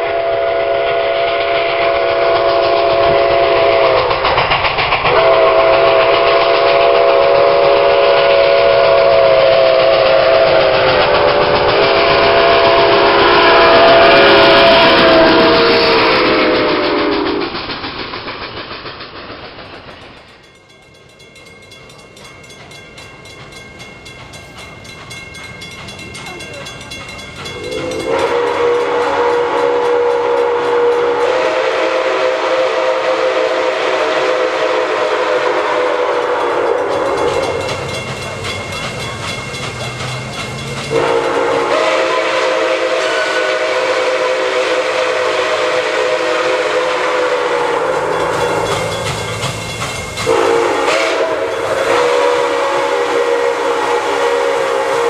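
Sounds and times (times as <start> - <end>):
steam locomotive chime whistle: 0.0 - 17.6, 19.9 - 55.0.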